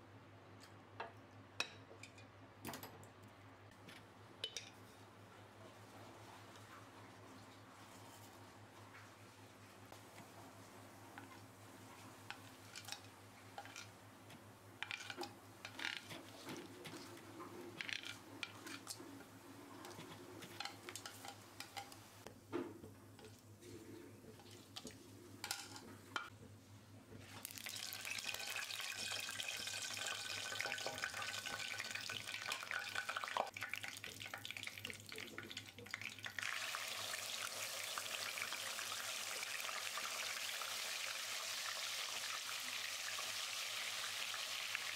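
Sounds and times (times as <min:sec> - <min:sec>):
spices crackling in hot oil: 0:11.1 - 0:22.3, 0:27.2 - 0:44.9
oil sizzling: 0:27.2 - 0:44.9.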